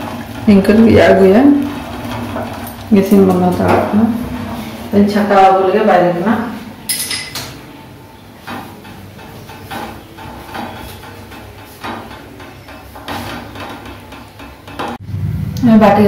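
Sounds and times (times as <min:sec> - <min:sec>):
cookware knocks and clinks: 0:06.9 - 0:07.6.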